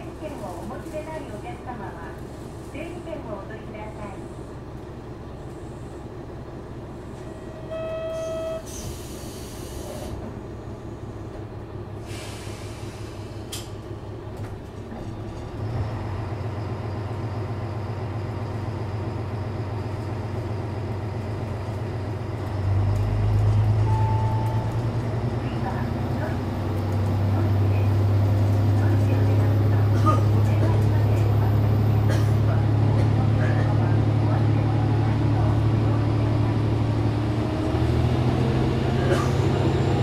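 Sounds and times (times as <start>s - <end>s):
diesel railcar engine humming: 0.0s - 40.0s
brief pitched tone: 7.5s - 8.7s, 23.8s - 24.9s.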